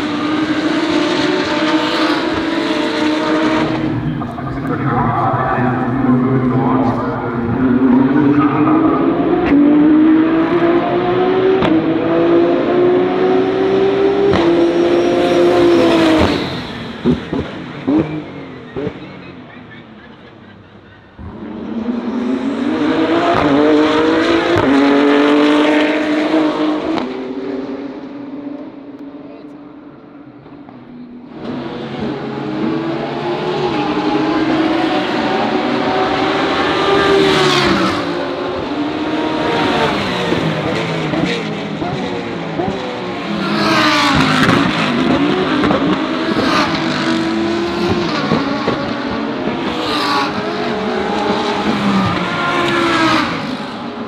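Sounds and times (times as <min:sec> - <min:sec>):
race car engine at full throttle: 0:00.0 - 0:54.0.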